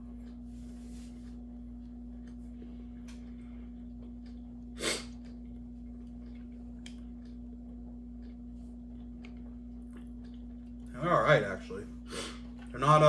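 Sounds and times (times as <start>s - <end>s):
steady low hum: 0.0s - 13.0s
sniff through the nose: 4.8s - 5.1s, 12.1s - 12.4s.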